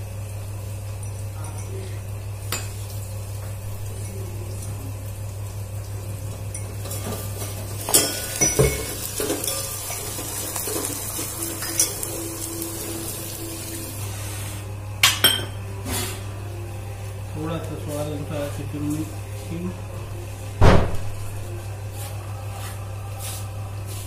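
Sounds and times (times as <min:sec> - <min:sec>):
oil sizzling: 0:00.0 - 0:16.2
steady low hum: 0:00.0 - 0:24.0.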